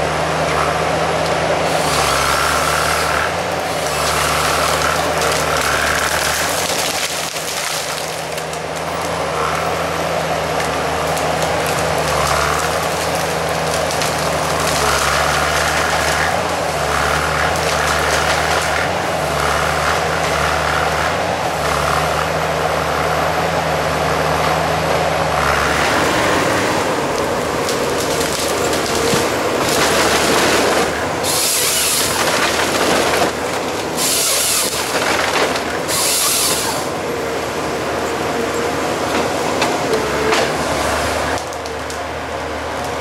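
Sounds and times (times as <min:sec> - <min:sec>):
diesel engine running: 0:00.0 - 0:43.0
chainsaw cutting through stems: 0:01.6 - 0:09.7, 0:10.5 - 0:22.2, 0:25.6 - 0:37.0
hydraulic whine: 0:25.6 - 0:41.0.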